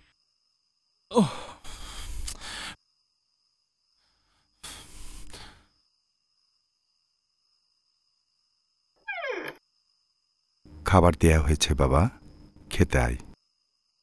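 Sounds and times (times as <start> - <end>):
man sighing: 1.1 - 2.7.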